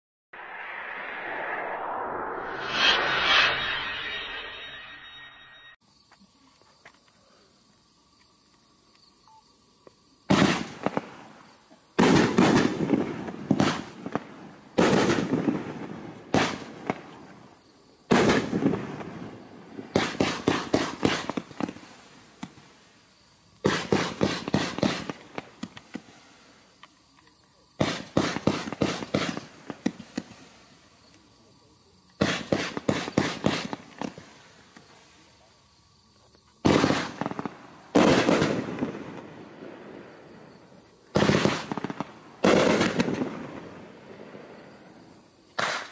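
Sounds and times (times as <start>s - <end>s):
fireworks volleys of sharp pops: 9.9s - 31.4s, 32.0s - 35.5s, 36.2s - 45.9s.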